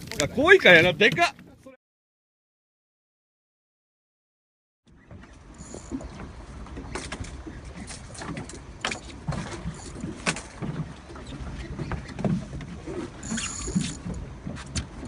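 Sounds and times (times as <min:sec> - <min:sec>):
water around hull: 0:00.0 - 0:01.8, 0:04.8 - 0:15.0
fishing boat rumble: 0:04.9 - 0:15.0.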